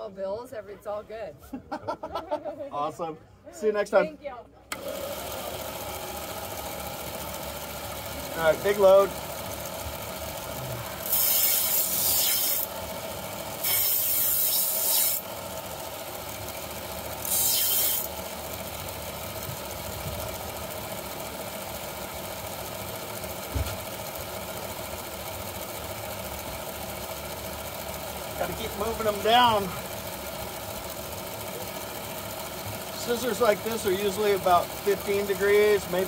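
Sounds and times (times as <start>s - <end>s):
belt sander humming: 4.7s - 36.0s
blade grinding hiss: 11.0s - 12.7s, 13.6s - 15.2s, 17.2s - 18.2s.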